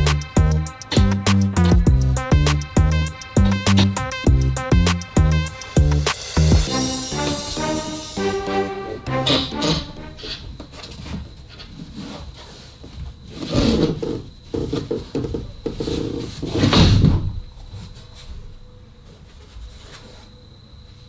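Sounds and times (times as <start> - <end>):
pelmet scraping and knocking: 11.2 - 17.0.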